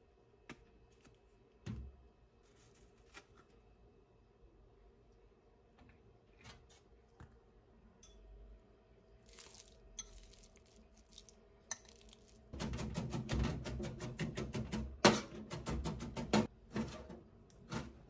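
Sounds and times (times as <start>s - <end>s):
masher squishing in ceramic bowl: 9.2s - 12.6s.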